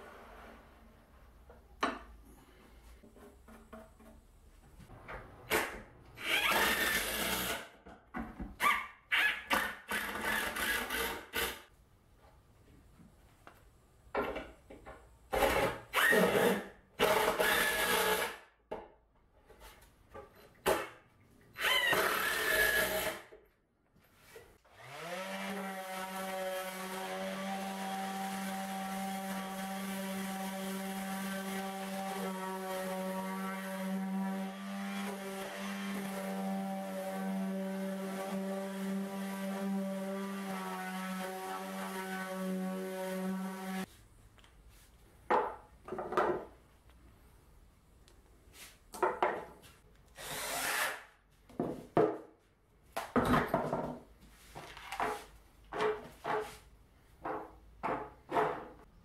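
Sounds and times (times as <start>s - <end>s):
drill driving screws into plywood: 6.2s - 7.7s, 15.4s - 18.4s, 21.6s - 23.2s, 50.2s - 51.1s.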